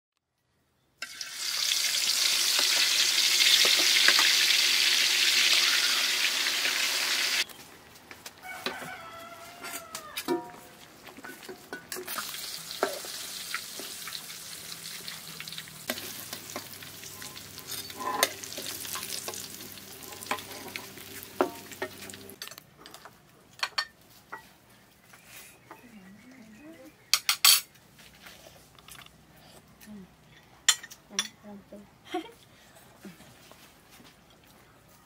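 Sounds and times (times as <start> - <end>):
hot food sizzling: 1.0 - 7.4, 11.9 - 22.4
spoons clinking on plates: 9.7 - 13.1, 15.9 - 23.0, 23.6 - 24.5, 27.2 - 27.7.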